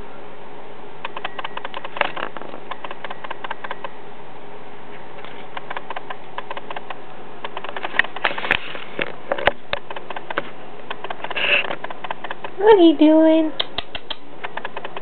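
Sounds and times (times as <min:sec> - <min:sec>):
rabbit scratching in wire cage: 0:05.2 - 0:12.8.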